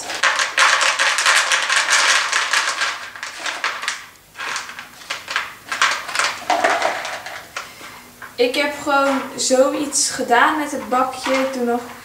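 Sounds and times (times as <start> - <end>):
feed pellets rattling into container: 0.0 - 7.6.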